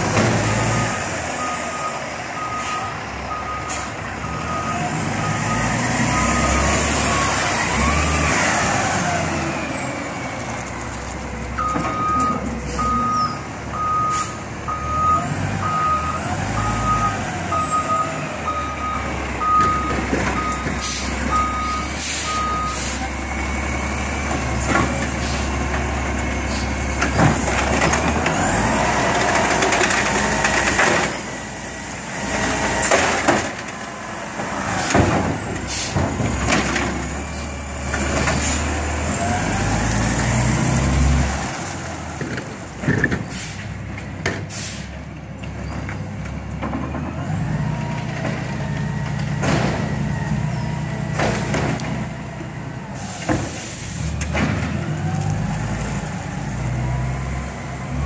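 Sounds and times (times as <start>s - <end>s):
truck engine drone: 0.0s - 58.0s
truck backup alarm beeping: 0.4s - 8.8s, 11.4s - 23.8s.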